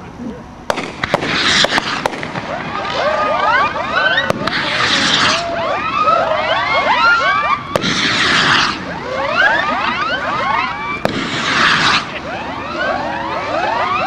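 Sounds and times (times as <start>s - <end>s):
firework crack: 0.7s - 14.0s
firework whistles: 0.7s - 14.0s
rushing hiss: 7.8s - 8.9s, 11.0s - 12.1s.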